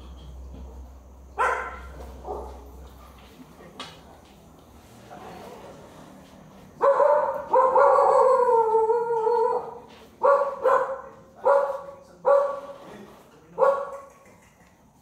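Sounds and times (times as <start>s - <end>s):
dog barking: 1.4s - 2.8s, 6.8s - 12.8s, 13.6s - 14.1s
dog howling: 7.1s - 9.9s.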